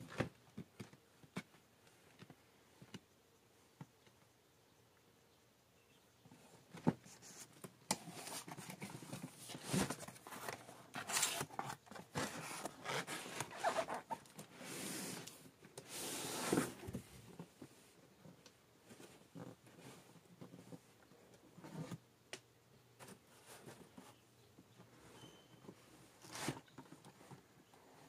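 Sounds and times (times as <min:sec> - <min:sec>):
cardboard rustling and scraping: 0:06.6 - 0:17.9, 0:23.0 - 0:24.2, 0:24.9 - 0:28.0.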